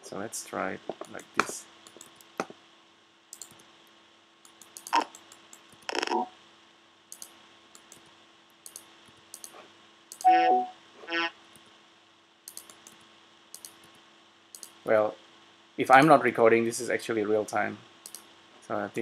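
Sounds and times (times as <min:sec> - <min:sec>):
faint steady hum: 0:00.0 - 0:19.0
light clicks: 0:03.3 - 0:03.7, 0:07.1 - 0:10.3, 0:12.5 - 0:14.8, 0:18.0 - 0:18.3.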